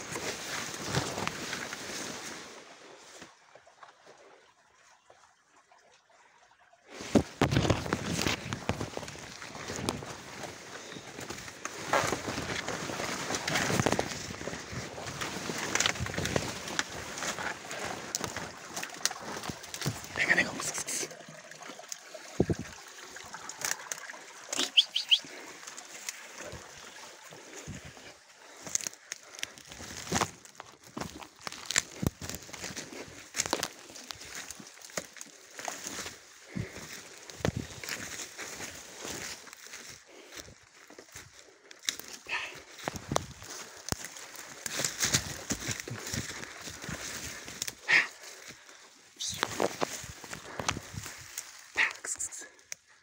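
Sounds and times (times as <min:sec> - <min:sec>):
leaves rustling and brushing: 0:00.0 - 0:03.3, 0:06.9 - 0:20.6, 0:23.5 - 0:51.9
bird chirping: 0:24.6 - 0:25.3.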